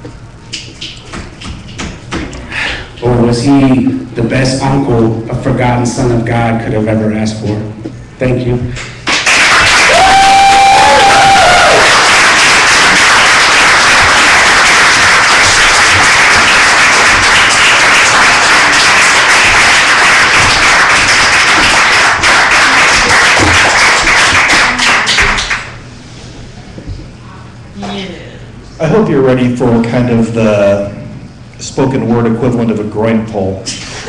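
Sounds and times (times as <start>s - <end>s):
audience applauding: 9.0s - 25.8s.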